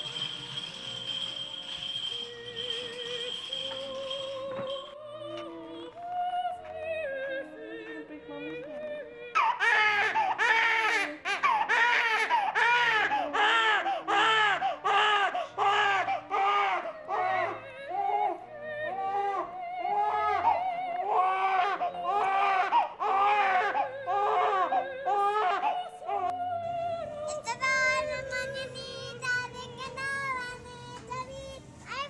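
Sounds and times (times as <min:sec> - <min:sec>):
soft music: 0:00.0 - 0:14.0
newborn baby crying: 0:09.3 - 0:26.4.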